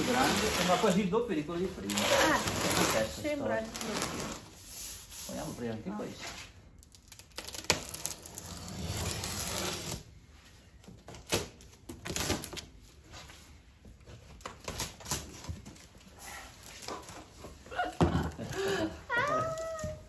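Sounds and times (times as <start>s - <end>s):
tape scraping rasp: 0.0s - 1.0s, 1.8s - 5.1s, 7.6s - 10.0s
tape and cardboard rustling: 0.0s - 20.0s.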